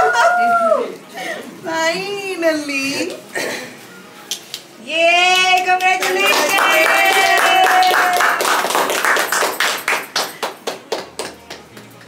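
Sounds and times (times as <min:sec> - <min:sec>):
people clapping: 0:05.3 - 0:12.0
people cheering: 0:06.0 - 0:09.1.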